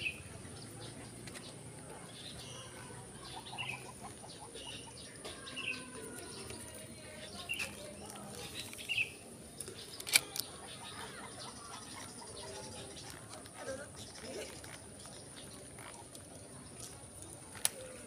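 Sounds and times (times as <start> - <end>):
small bird chirping: 0.0 - 16.1.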